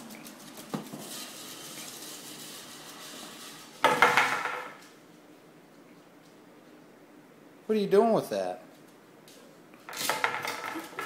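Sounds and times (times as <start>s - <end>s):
plastic bat scraping on floor: 0.2s - 4.8s, 9.9s - 11.0s.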